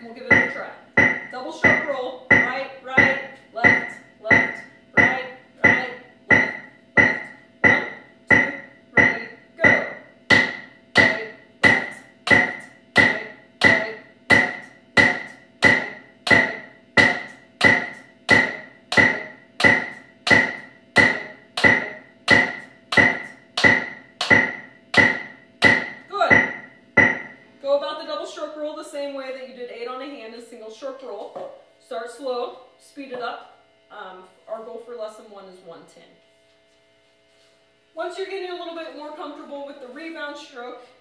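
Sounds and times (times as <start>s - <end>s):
metronome clicking: 0.3s - 27.3s.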